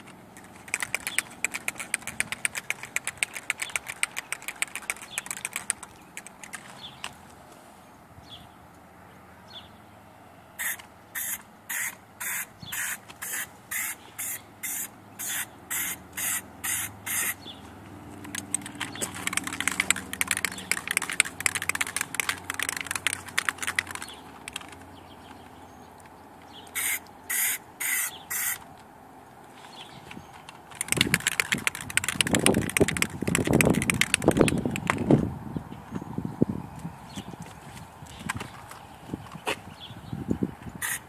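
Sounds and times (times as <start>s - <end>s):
crackling spitting spray: 10.6s - 17.4s, 18.2s - 24.8s, 26.8s - 28.6s, 40.8s - 41.0s.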